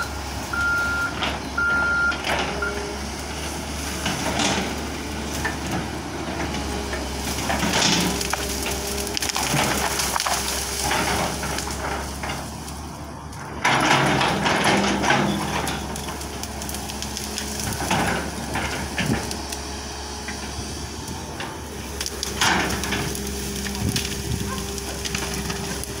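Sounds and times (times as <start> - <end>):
excavator diesel engine running: 0.0 - 26.0
branches crackling and snapping: 0.1 - 26.0.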